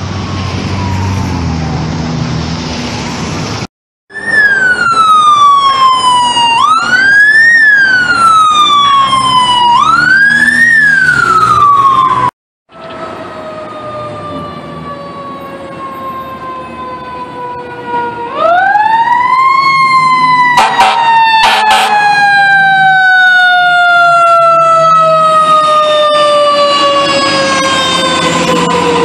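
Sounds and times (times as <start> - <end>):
fire engine siren wailing: 0.0 - 2.4, 4.1 - 29.0
short horn blasts: 20.6 - 21.9.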